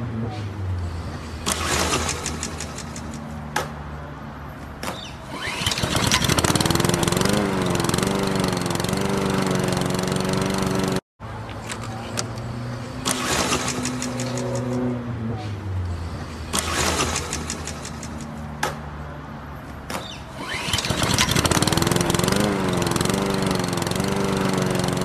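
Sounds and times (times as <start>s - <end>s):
starter cord pulls: 5.3s - 9.1s, 20.4s - 25.0s
lawn mower engine running: 5.3s - 11.0s, 11.6s - 14.9s, 20.3s - 25.0s.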